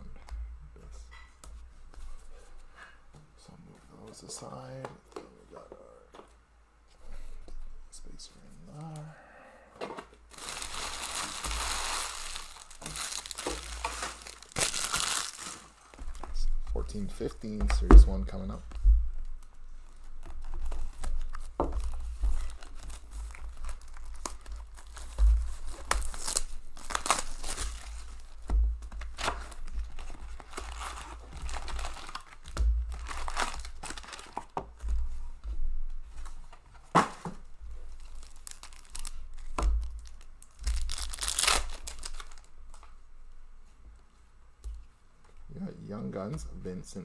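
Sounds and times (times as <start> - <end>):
card pack wrappers tearing: 10.3 - 16.0, 20.4 - 28.4, 29.0 - 34.5, 38.0 - 42.5.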